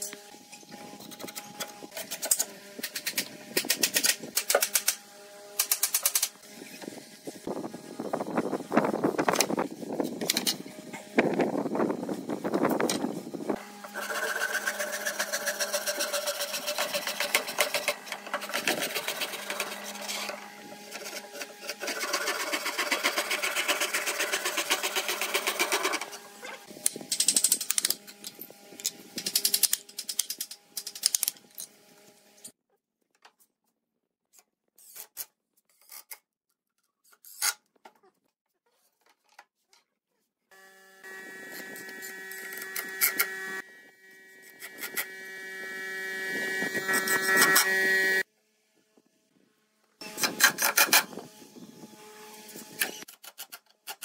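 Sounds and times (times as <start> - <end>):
pull saw cutting wood: 12.5 - 27.0, 40.6 - 48.3, 50.0 - 54.0
cordless drill whine: 40.6 - 48.3.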